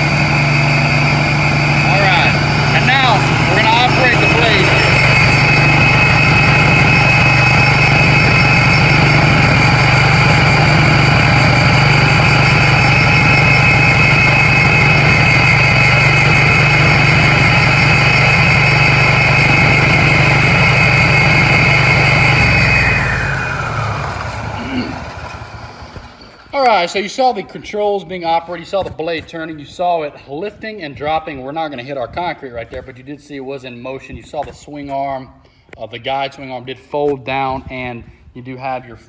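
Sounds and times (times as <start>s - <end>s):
concrete saw engine drone: 0.0s - 27.6s
saw blade high whine: 0.0s - 28.9s.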